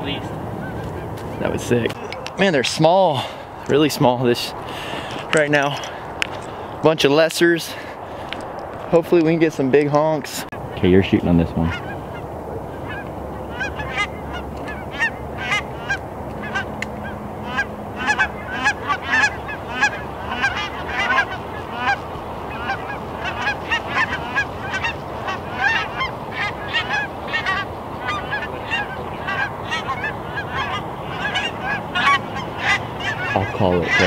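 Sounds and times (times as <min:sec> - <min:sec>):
geese honking in flight: 0:10.9 - 0:34.0.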